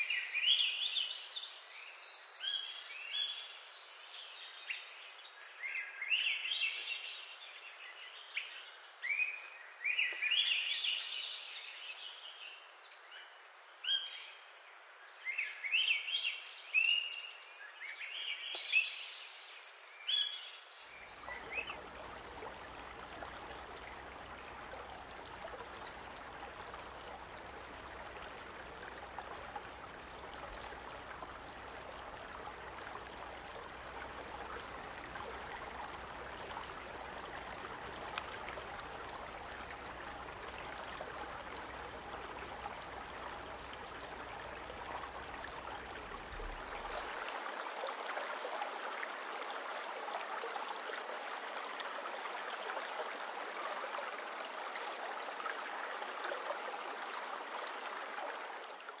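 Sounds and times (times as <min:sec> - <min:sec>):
stream running over stones: 0:17.8 - 0:59.0.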